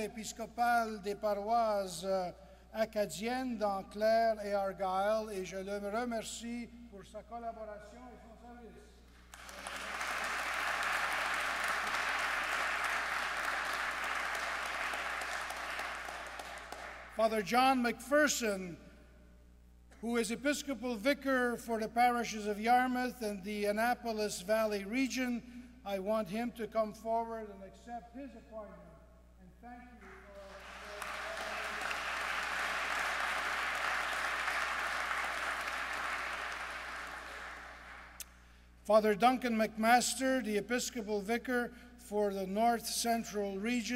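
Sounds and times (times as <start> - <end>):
crowd applauding: 9.3 - 17.2, 30.0 - 38.2.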